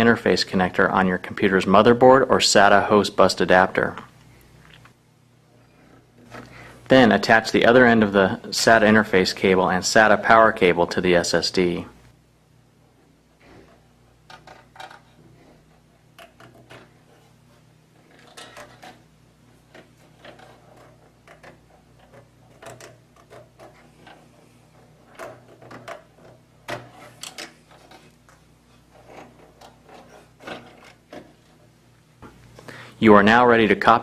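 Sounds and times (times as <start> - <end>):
cables rustling: 12.9 - 32.8.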